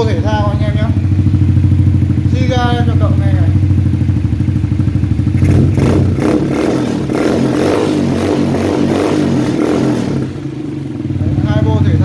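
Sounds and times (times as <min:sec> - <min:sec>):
atv engine idling and revving: 0:00.0 - 0:12.0.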